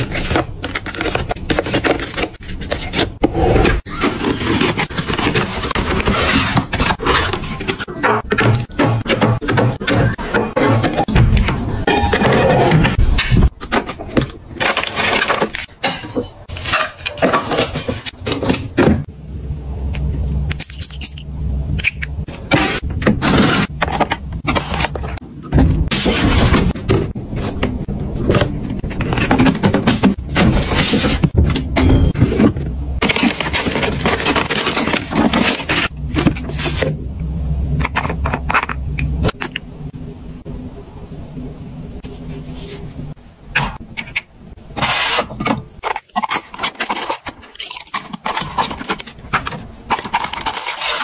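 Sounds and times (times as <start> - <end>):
plastic containers rustling and clicking: 0.0 - 11.6, 13.5 - 19.1, 21.8 - 36.9, 44.8 - 51.0
steady low hum: 17.8 - 46.0.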